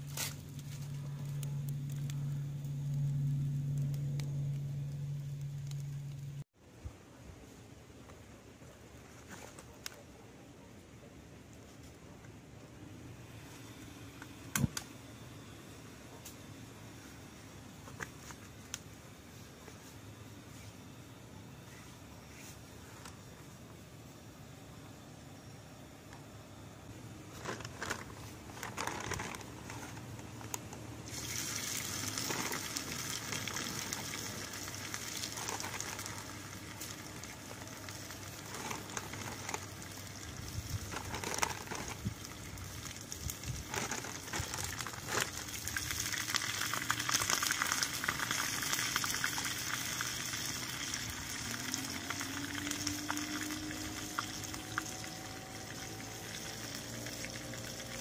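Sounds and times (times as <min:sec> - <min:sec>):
small clicks and crackles: 0:00.0 - 0:06.4, 0:27.3 - 0:58.0
pot boiling on gas stove: 0:00.0 - 0:06.6, 0:26.9 - 0:58.0.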